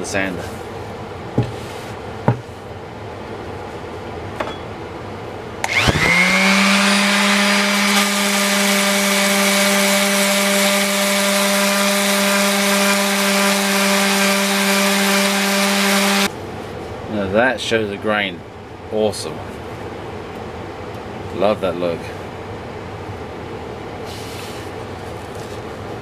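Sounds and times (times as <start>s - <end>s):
palm sander humming: 5.6s - 16.3s.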